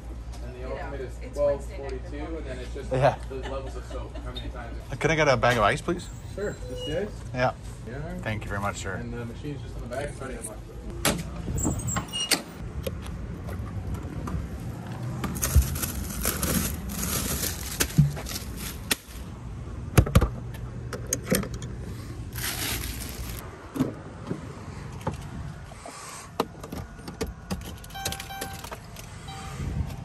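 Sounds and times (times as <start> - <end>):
plastic bag of ice crinkling: 15.4 - 19.2, 22.3 - 23.4
faint beeping tones: 29.2 - 29.8.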